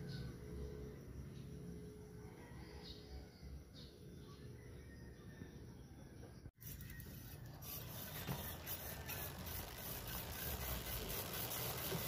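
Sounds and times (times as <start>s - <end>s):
bicycle wheel whirring: 6.6s - 12.0s.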